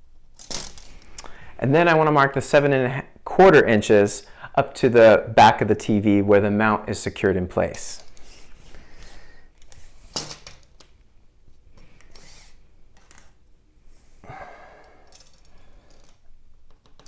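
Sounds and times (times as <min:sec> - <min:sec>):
short breaths: 0:01.1 - 0:01.6, 0:08.2 - 0:09.6, 0:14.1 - 0:16.1
pencil marking wall: 0:11.8 - 0:12.7.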